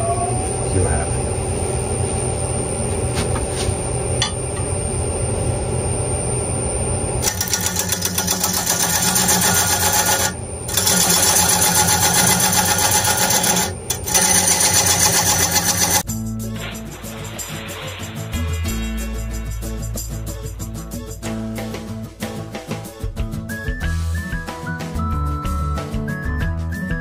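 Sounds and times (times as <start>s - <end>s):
wood lathe humming: 0.3s - 16.0s.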